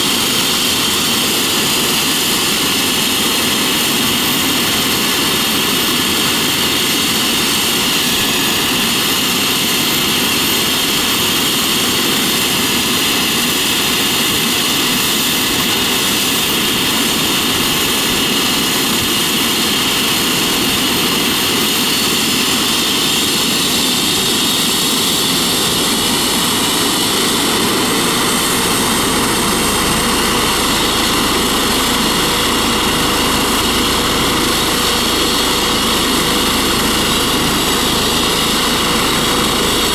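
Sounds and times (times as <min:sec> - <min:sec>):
helicopter engine whine: 0:00.0 - 0:39.9
helicopter rotor noise: 0:00.0 - 0:39.9.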